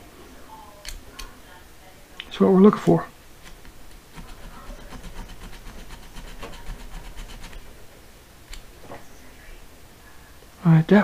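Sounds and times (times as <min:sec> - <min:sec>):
hand file scraping metal: 0:03.5 - 0:07.8.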